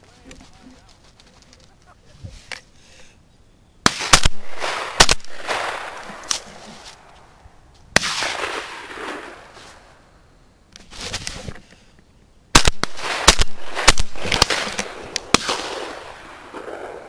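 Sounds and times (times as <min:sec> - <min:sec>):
shotgun shots with echo: 0:03.8 - 0:06.5, 0:08.0 - 0:09.5, 0:12.6 - 0:17.0.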